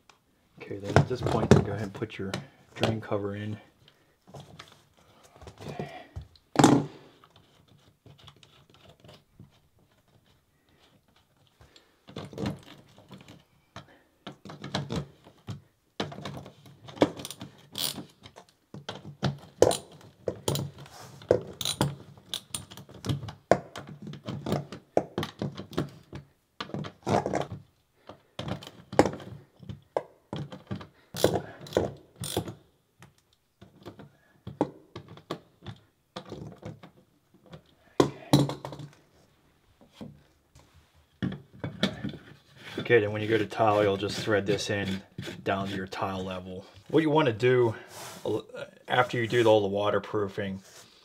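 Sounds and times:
ratchet wrench clicking: 17.8s - 18.0s, 32.2s - 32.5s.

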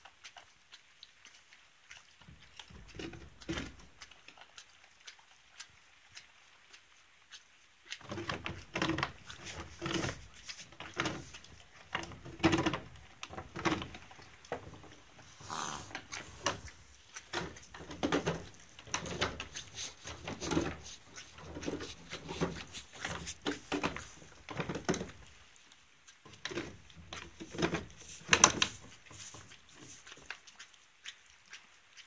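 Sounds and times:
short rustles: 18.1s - 24.4s.

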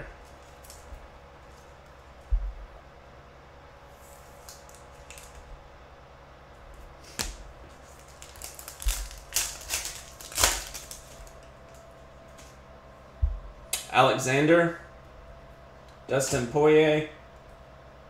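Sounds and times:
foil wrapper crinkling: 4.1s - 5.4s, 7.2s - 11.8s.

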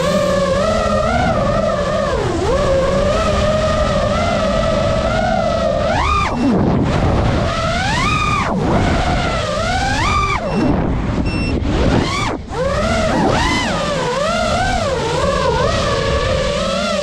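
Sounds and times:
rushing noise: 0.0s - 13.2s
quadcopter motors whining: 0.0s - 17.0s.

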